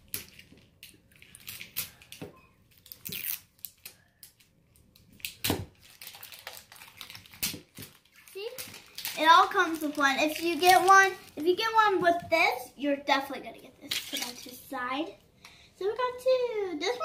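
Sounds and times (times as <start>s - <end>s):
plastic packaging crinkling: 5.2s - 11.8s.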